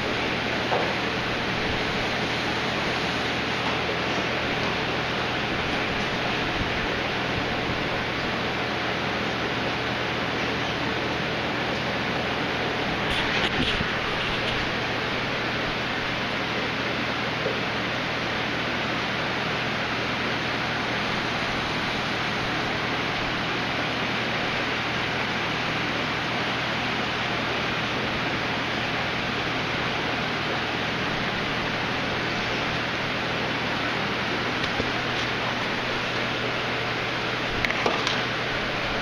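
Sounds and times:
low pump hum: 0.0s - 39.0s.

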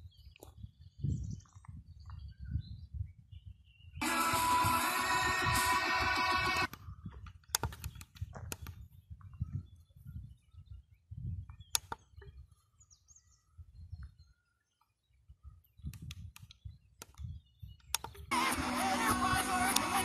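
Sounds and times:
radio music: 4.0s - 6.7s, 18.3s - 20.0s
sharp clicks: 4.0s - 8.8s, 11.7s - 12.3s, 15.9s - 20.0s.

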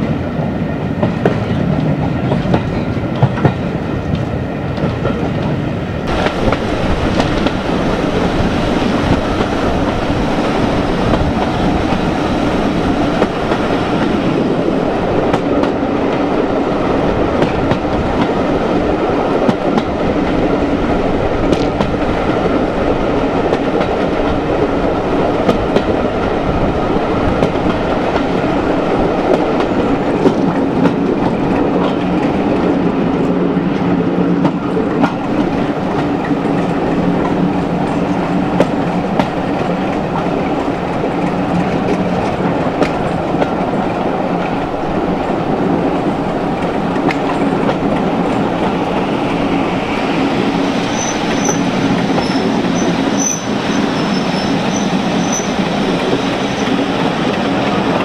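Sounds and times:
rush of moving train: 0.0s - 58.0s
train rumble: 0.0s - 58.0s
wheels clacking over rail joints: 1.0s - 20.7s.

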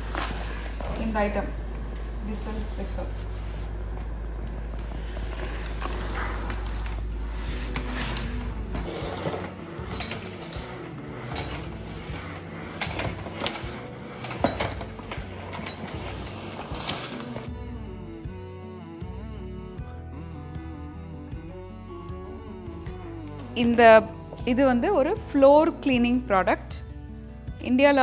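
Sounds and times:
steam mop humming: 0.0s - 17.5s.

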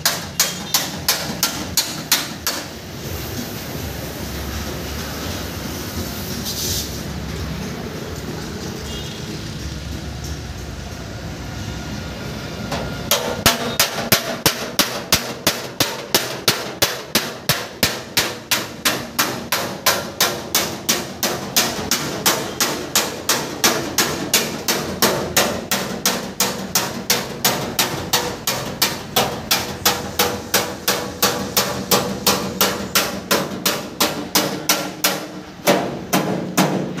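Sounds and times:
hammering blows: 0.0s - 2.9s, 12.7s - 37.0s.

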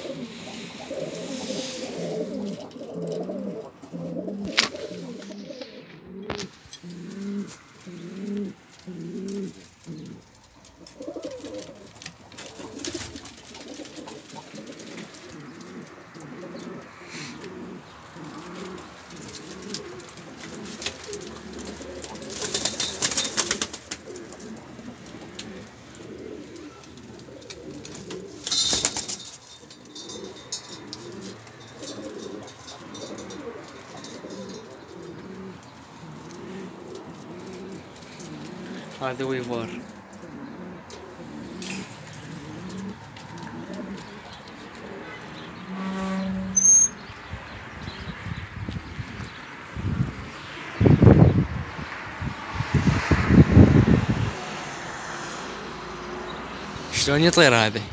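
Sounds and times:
bursts of rustling: 0.0s - 16.8s, 17.5s - 45.0s
pigeons cooing: 0.0s - 53.3s, 54.0s - 57.5s.

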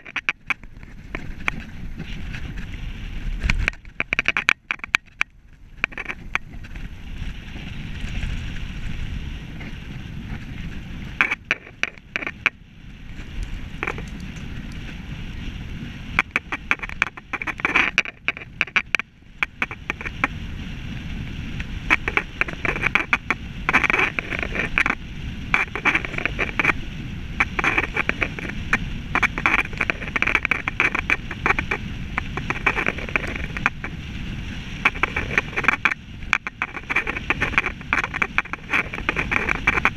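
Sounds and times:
bike rattling clicks: 0.0s - 2.8s, 3.4s - 20.2s
tyres and wind rumble: 0.0s - 39.9s.

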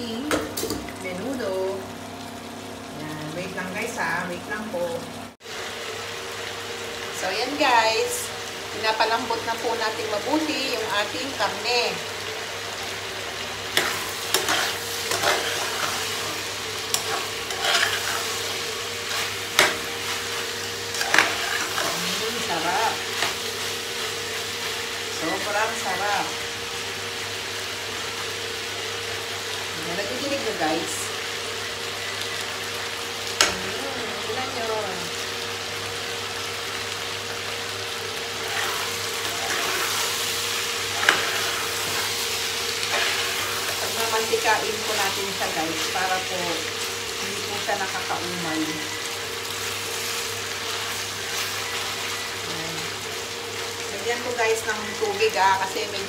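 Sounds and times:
meat sizzling in a pot: 0.0s - 56.0s
metal spoon scraping a pot: 13.8s - 18.4s.

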